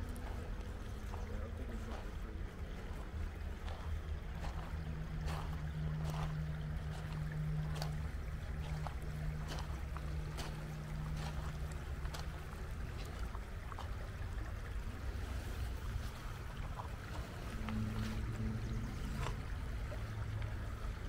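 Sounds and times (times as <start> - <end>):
low steady hum: 0.0 - 21.0
river water rushing over stones: 0.0 - 21.0
small ticks and splashes: 0.0 - 21.0.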